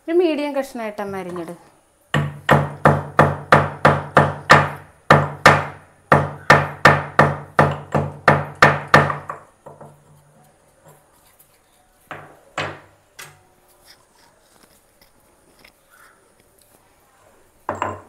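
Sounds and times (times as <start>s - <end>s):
stone pestle pounding in mortar: 2.2s - 10.0s.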